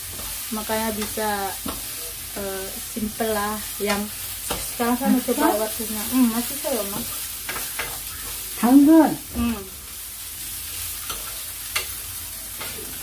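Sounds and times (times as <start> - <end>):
vegetables sizzling in a frying pan: 0.0 - 13.0
spatula tapping against a pan: 11.1 - 12.0.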